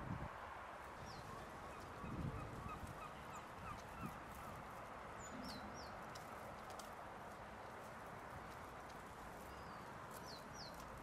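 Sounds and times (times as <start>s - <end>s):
high falling bird calls: 1.0s - 6.1s.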